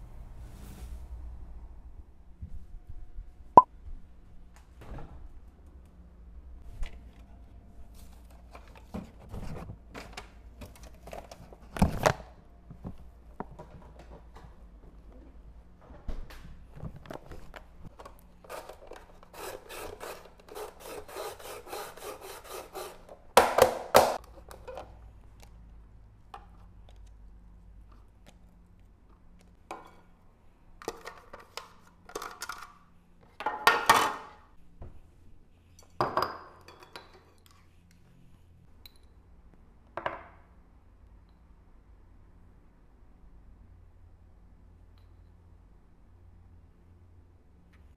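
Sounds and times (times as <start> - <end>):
plastic kitchenware clattering: 30.8 - 32.8.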